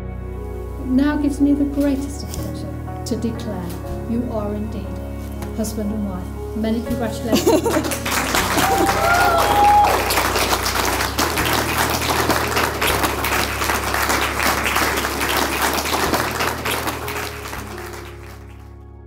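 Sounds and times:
soft music: 0:00.0 - 0:19.0
crowd applauding: 0:07.4 - 0:18.8.

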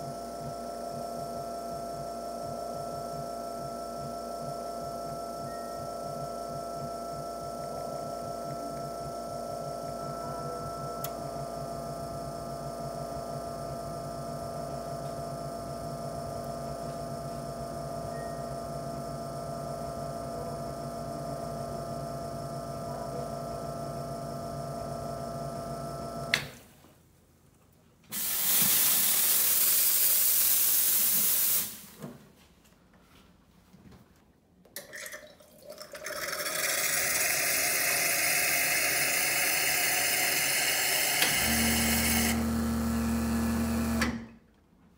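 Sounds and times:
espresso machine pump humming: 0:00.0 - 0:26.3, 0:35.8 - 0:44.3
hot water filling steel pitcher: 0:34.8 - 0:42.3.

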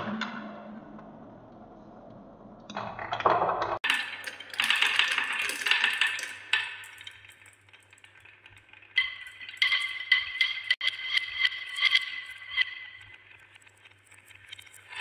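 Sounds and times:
marbles rolling on wooden track: 0:02.9 - 0:15.0.

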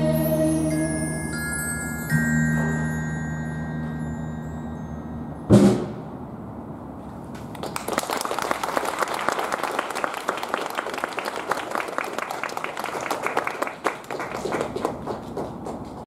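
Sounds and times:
glockenspiel ringing: 0:00.0 - 0:05.5
loud band hit: 0:05.5 - 0:06.2
audience clapping: 0:07.5 - 0:16.0.

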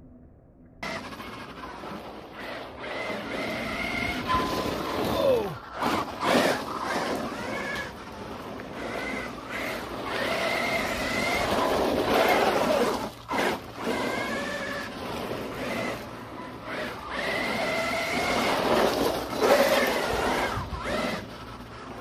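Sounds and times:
electric motor whine: 0:00.8 - 0:22.0.

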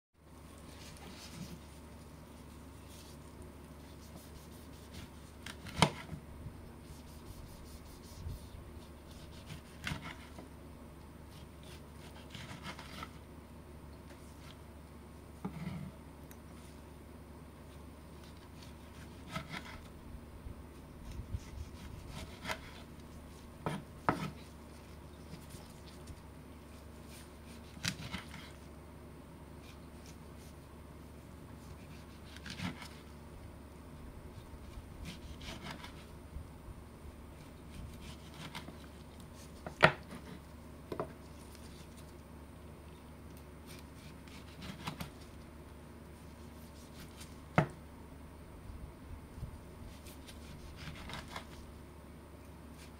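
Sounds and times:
knife slicing tomatoes: 0:06.8 - 0:10.4, 0:11.3 - 0:13.2, 0:18.2 - 0:19.9, 0:21.0 - 0:26.2, 0:27.0 - 0:28.6, 0:31.6 - 0:33.1, 0:34.6 - 0:36.1, 0:37.4 - 0:42.1, 0:43.6 - 0:45.3, 0:49.9 - 0:51.6.

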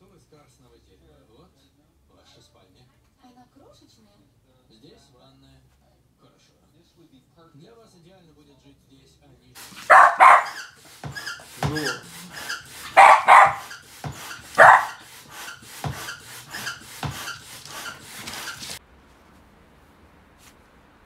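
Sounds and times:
dog barking sharply: 0:09.6 - 0:15.1.

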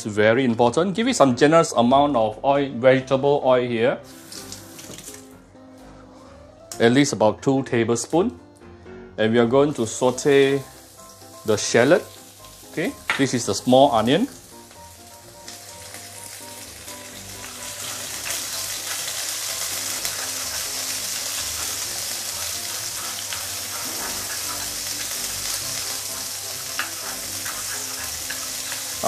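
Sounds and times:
shallots sizzling in oil: 0:04.0 - 0:05.3, 0:09.7 - 0:29.0.

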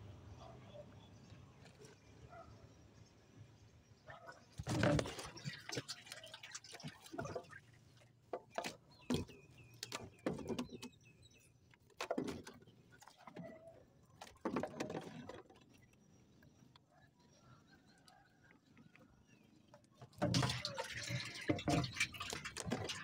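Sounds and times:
water splashing and dripping: 0:04.6 - 0:10.8, 0:20.1 - 0:23.0.

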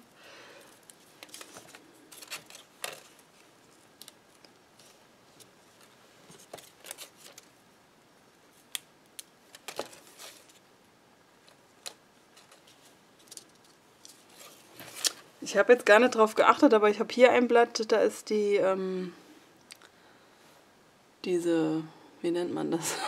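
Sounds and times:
paper rustling: 0:00.7 - 0:07.5, 0:09.5 - 0:10.6, 0:11.4 - 0:15.3.

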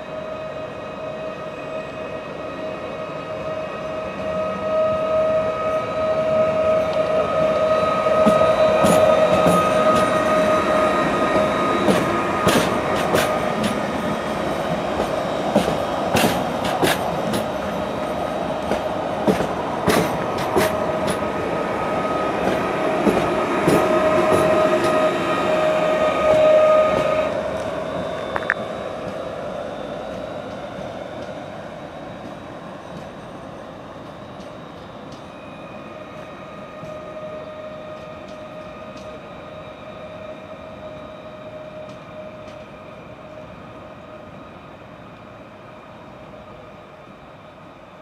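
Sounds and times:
electric train whine: 0:00.0 - 0:48.0.

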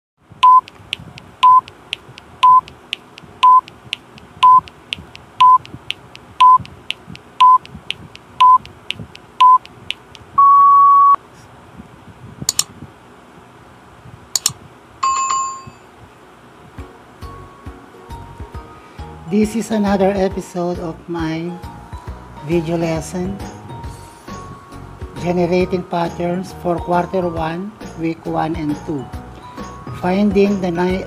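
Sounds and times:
short electronic beeps: 0:00.4 - 0:00.7, 0:01.4 - 0:01.7, 0:02.4 - 0:02.7, 0:03.4 - 0:03.7, 0:04.4 - 0:04.7, 0:05.4 - 0:05.6, 0:06.4 - 0:06.6, 0:07.4 - 0:07.6, 0:08.4 - 0:08.6, 0:09.4 - 0:09.6, 0:10.4 - 0:11.2
clock ticking: 0:00.4 - 0:10.3
sharp clicks: 0:00.4 - 0:10.3, 0:12.5 - 0:12.7, 0:14.4 - 0:14.6
bell-like ding: 0:15.0 - 0:15.9.

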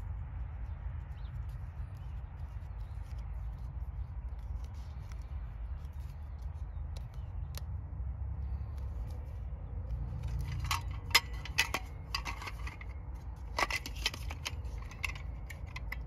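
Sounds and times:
plastic clicks and rubbing: 0:08.5 - 0:16.0.

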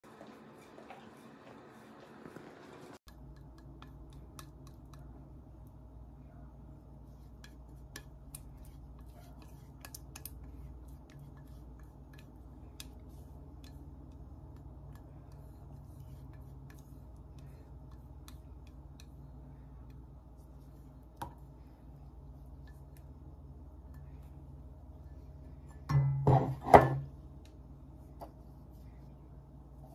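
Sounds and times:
steady low hum: 0:00.0 - 0:29.9
whisk clicking against steel bowl: 0:03.1 - 0:05.2, 0:07.4 - 0:19.2.

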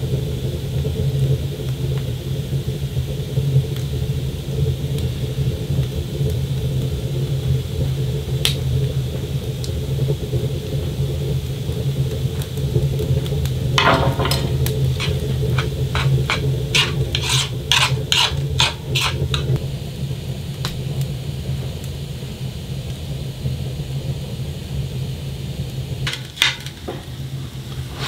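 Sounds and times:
vegetables frying in a pan: 0:00.0 - 0:28.0
knife and utensils clicking and scraping: 0:13.8 - 0:19.6, 0:26.1 - 0:26.9.

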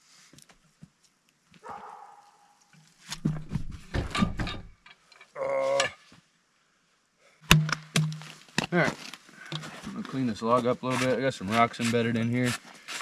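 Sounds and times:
man grunting: 0:05.4 - 0:05.9.

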